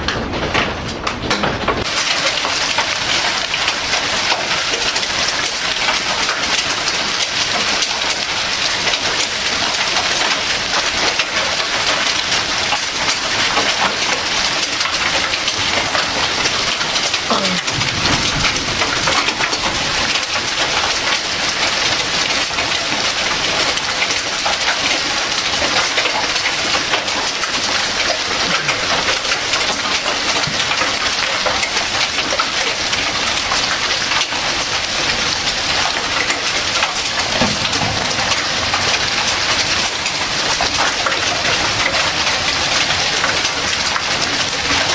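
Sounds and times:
heavy rain and hail: 0.0 - 44.9.

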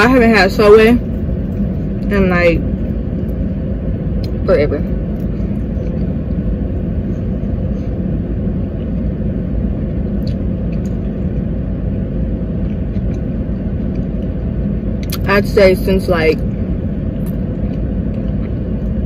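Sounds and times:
car engine idling: 0.0 - 19.0
faint chewing clicks: 17.2 - 19.0.

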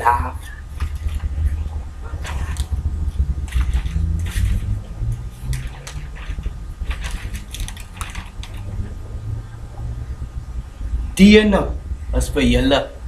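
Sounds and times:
low steady hum: 0.0 - 13.0
newspaper rustling: 3.4 - 4.8, 5.4 - 8.8.

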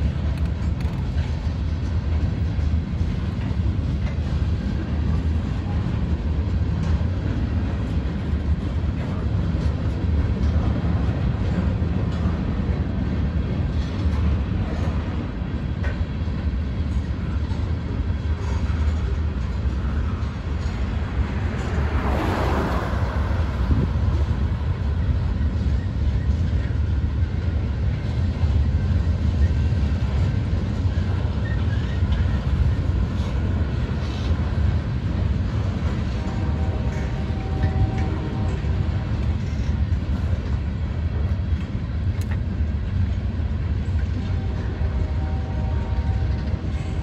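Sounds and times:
train wheels rumbling on rail: 0.0 - 47.0
road vehicle passing: 20.8 - 25.5.

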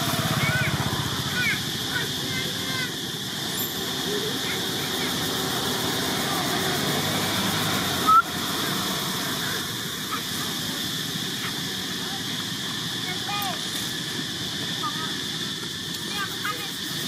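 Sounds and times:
high-pitched hiss: 0.0 - 17.0.

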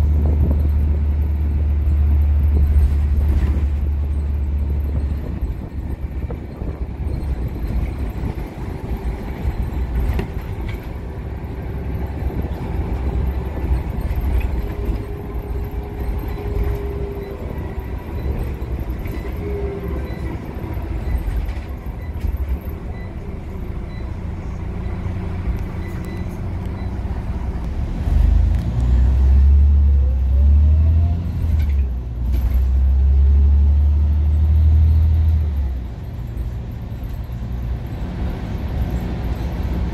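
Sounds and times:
bus engine and road rumble: 0.0 - 39.9
gearbox whine: 1.9 - 27.2.

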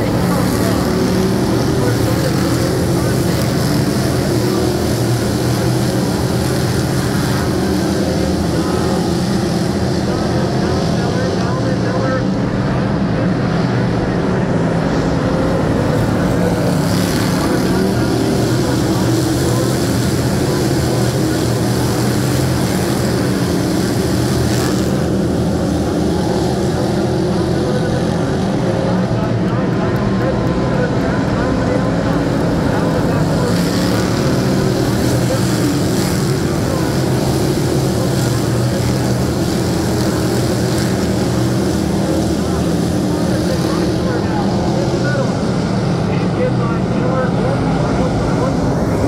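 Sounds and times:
race car engines droning: 0.0 - 49.0.

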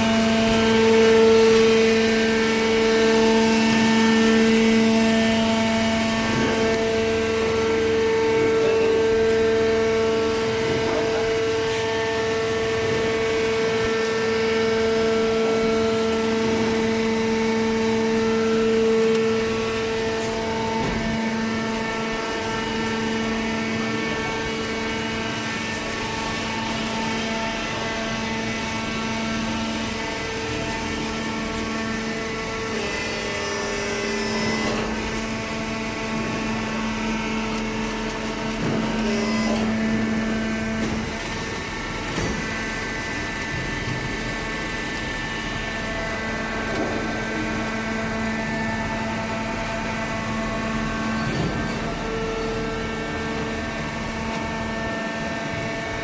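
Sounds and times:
hydraulic power unit humming: 0.0 - 56.0.

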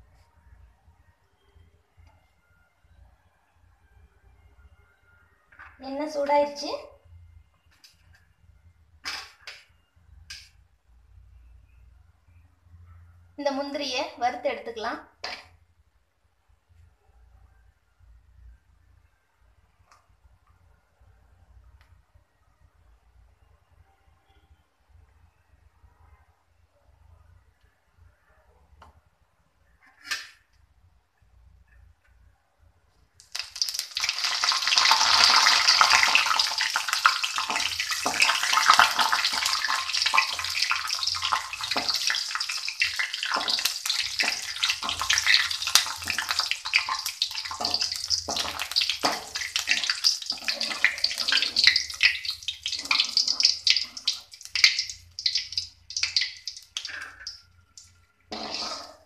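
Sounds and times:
nuts sizzling in hot oil: 33.2 - 57.4, 58.3 - 59.0.

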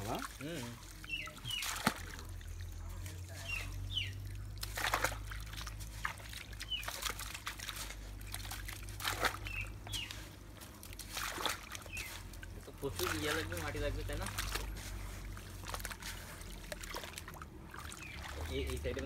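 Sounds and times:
water splashes: 0.0 - 19.0
water trickling and sloshing in mud: 0.0 - 19.0
bird chirps: 1.0 - 1.8, 2.5 - 4.4, 6.6 - 7.1, 9.4 - 10.3, 11.8 - 12.2, 18.0 - 18.4.

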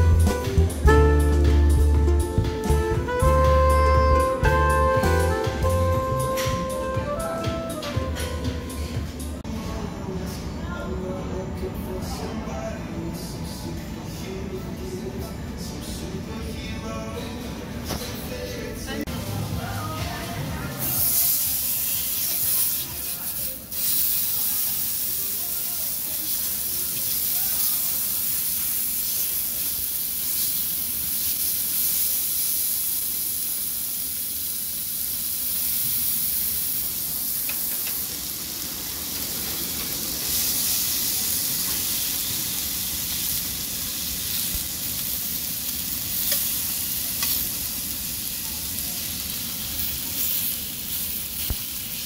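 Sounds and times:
meat sizzling on grill plate: 20.6 - 52.0.

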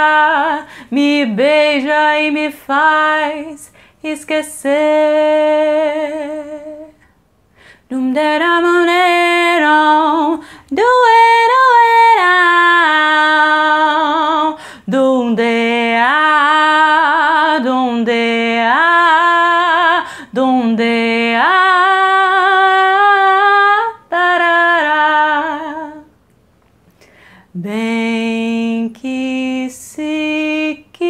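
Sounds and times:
woman singing a cappella: 0.0 - 26.2, 27.0 - 31.0
singer breathing: 0.6 - 0.9, 3.7 - 4.0, 7.4 - 7.9, 10.4 - 10.7, 14.6 - 14.9, 20.0 - 20.3, 26.9 - 27.5.

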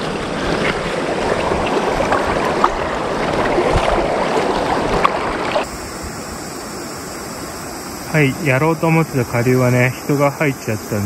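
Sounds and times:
water splashes: 0.0 - 5.8
river water flowing: 0.0 - 11.0.

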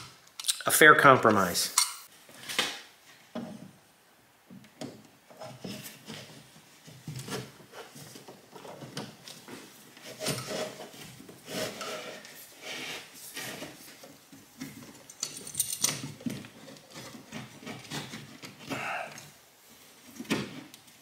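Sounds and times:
cable rubbing and scraping: 7.2 - 14.1.

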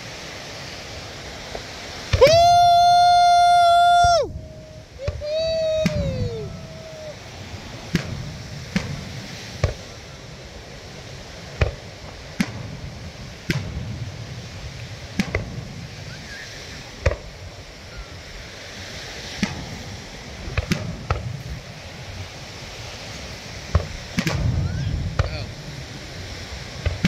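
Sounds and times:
background rush: 0.0 - 27.0
firework shells bursting: 1.5 - 10.2, 11.0 - 17.5, 19.3 - 21.9, 23.6 - 25.6.

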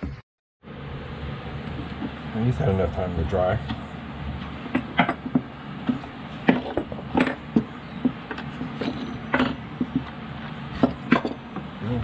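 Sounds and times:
clamp parts knocking and clattering: 6.4 - 10.1, 10.8 - 11.7.

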